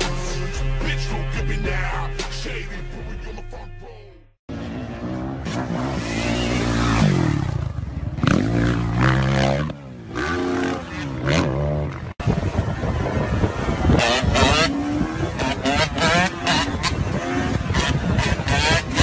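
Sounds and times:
music: 0.0s - 4.4s
dirt bike engine revving: 4.5s - 19.0s.

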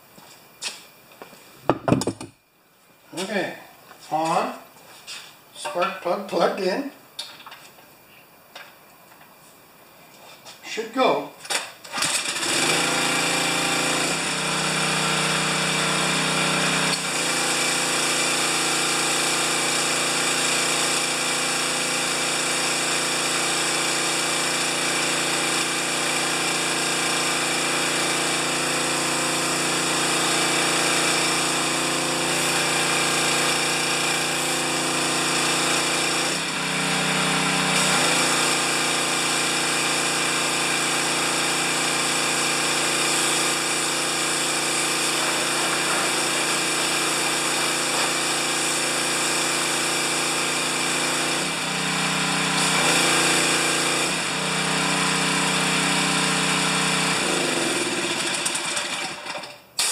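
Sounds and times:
recoil starter pull: 11.5s - 14.2s, 57.2s - 59.9s
pressure washer engine running: 12.0s - 59.9s.

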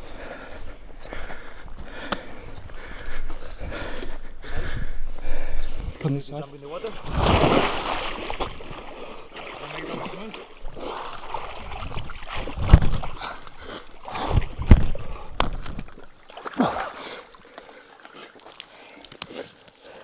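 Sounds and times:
water splashing: 6.7s - 19.2s.

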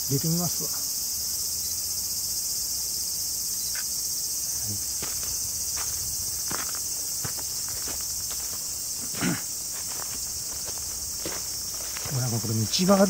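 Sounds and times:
insect chorus: 0.0s - 13.0s
footsteps in undergrowth: 4.7s - 13.0s.

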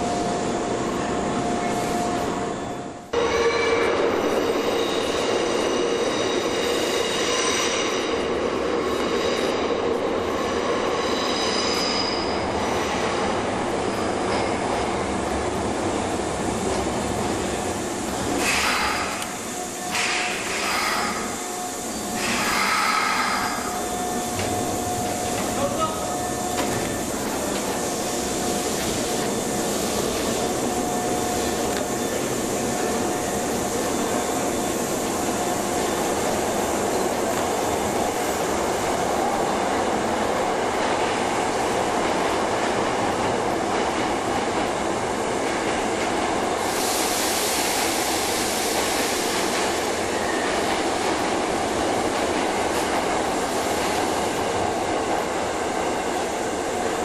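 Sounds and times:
electric train rumble and hum: 0.0s - 57.0s
air hiss: 18.0s - 25.6s, 46.5s - 50.2s.

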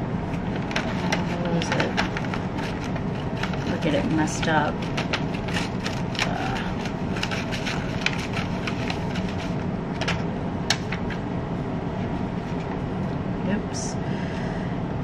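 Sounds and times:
low background rumble: 0.0s - 15.0s
paper rustling and crinkling: 0.4s - 11.2s.

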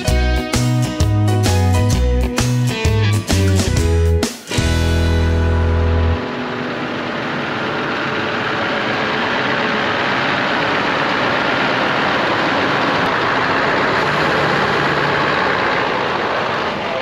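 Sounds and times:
diesel engine running: 4.5s - 17.0s.

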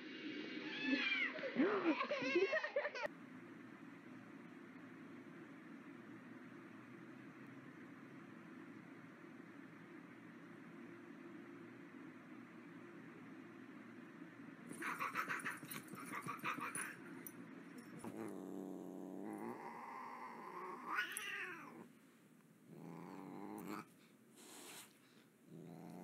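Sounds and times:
cat growling and yowling: 18.0s - 21.9s, 22.7s - 23.9s, 25.5s - 26.0s
cat hissing: 18.0s - 21.9s, 22.7s - 26.0s.

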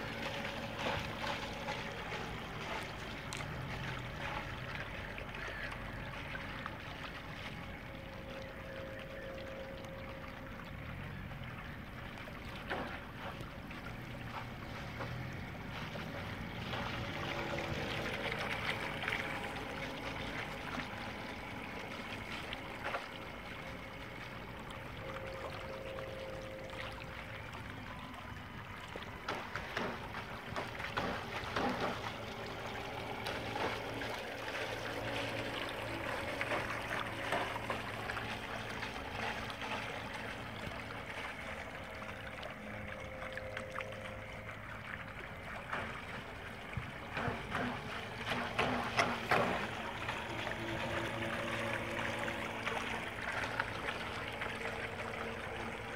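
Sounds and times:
faint boat motor hum: 0.0s - 55.9s
water lapping and trickling: 0.0s - 55.9s
sharp splashes or knocks: 29.2s - 39.8s.

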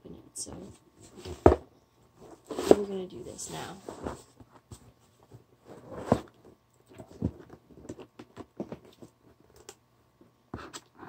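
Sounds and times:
rustling cardboard: 2.2s - 9.3s.

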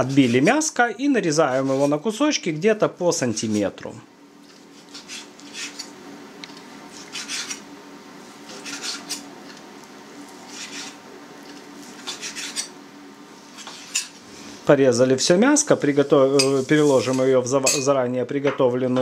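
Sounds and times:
knife cutting meat on board: 8.4s - 9.2s, 11.9s - 12.7s.

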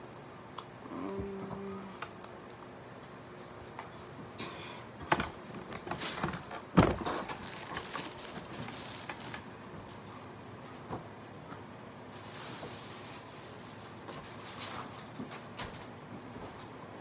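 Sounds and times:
handling knocks and rustling: 5.0s - 10.1s.

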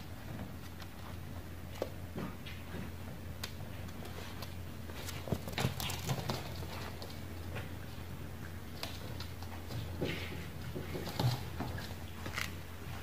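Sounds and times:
steady low hum: 0.0s - 13.0s
puppy claws clicking on wood floor: 3.4s - 7.3s.

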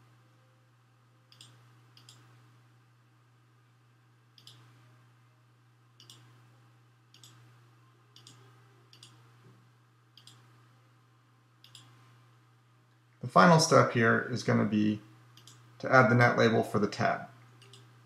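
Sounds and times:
faint steady low hum: 0.0s - 18.0s
computer mouse button clicking: 1.3s - 2.3s, 4.4s - 4.7s, 6.0s - 6.3s, 10.2s - 10.4s, 11.6s - 12.0s.

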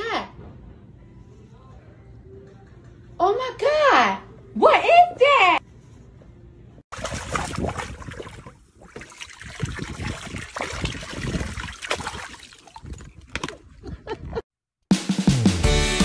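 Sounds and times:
water splashing into pool: 6.9s - 13.7s.

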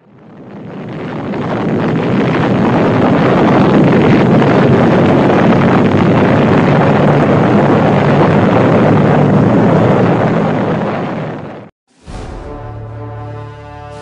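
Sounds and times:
loud rushing noise: 9.5s - 14.0s.

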